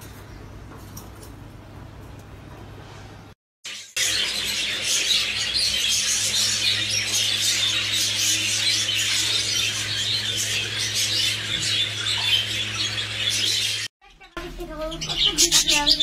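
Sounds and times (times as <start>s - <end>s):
budgerigars chattering: 4.0s - 16.0s.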